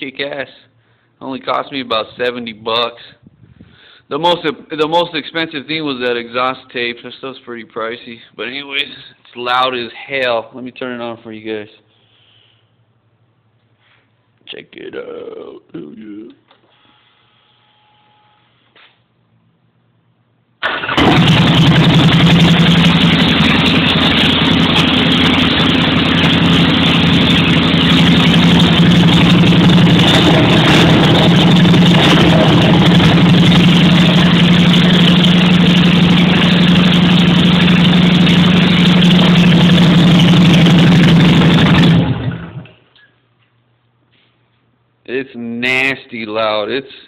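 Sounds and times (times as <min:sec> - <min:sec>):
motorcycle engine starting and idling: 0:20.6 - 0:42.8.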